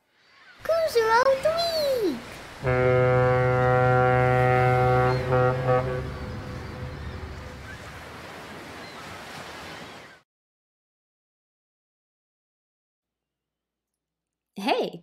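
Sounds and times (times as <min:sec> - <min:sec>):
ocean waves washing: 0:00.6 - 0:10.2
deep ship horn blasts: 0:02.6 - 0:08.3.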